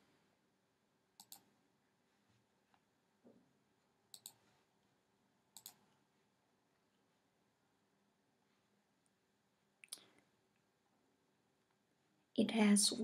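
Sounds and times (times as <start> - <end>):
computer mouse clicks: 1.2 - 1.6, 4.1 - 4.5, 5.5 - 6.0.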